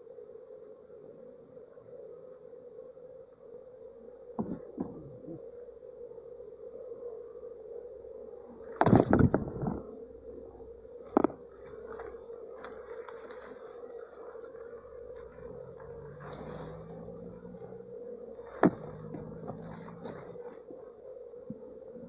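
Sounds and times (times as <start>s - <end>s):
bee swarm buzzing: 0.0s - 22.0s
rustling and knocks: 4.4s - 5.1s, 8.7s - 9.8s, 11.1s - 17.7s, 18.4s - 20.6s.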